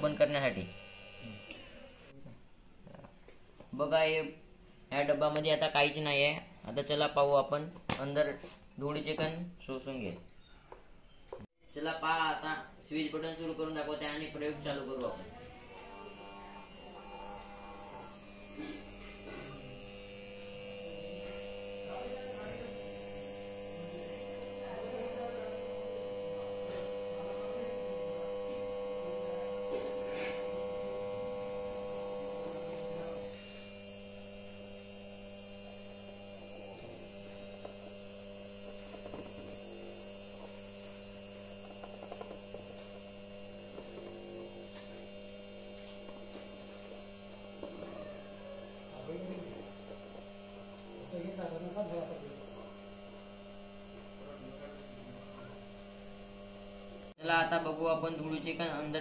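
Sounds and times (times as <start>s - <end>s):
small vacuum motor humming: 0.0s - 2.2s, 13.6s - 59.0s.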